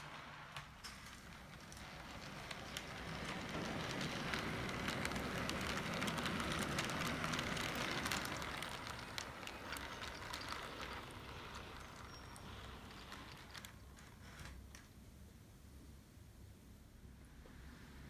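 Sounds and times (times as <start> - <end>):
model train motor and wheel rumble: 0.0 - 15.0
wheels clicking on rail: 0.0 - 15.0.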